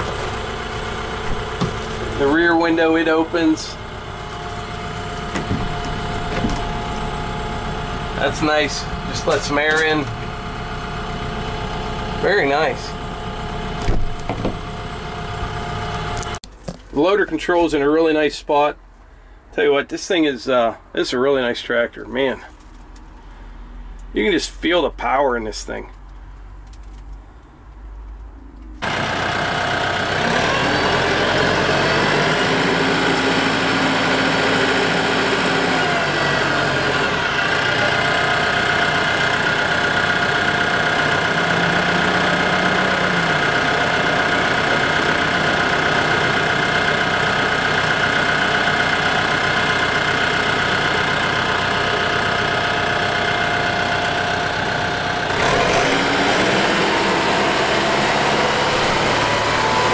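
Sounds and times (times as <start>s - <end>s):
tractor diesel engine running: 0.0s - 19.4s, 26.0s - 59.9s.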